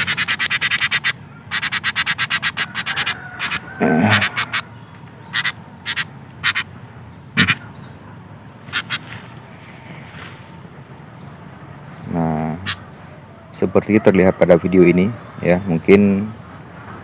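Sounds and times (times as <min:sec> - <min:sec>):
bird making harsh bursts: 0:00.0 - 0:07.8, 0:08.6 - 0:10.2, 0:12.3 - 0:13.0
low human voice: 0:03.8 - 0:04.4.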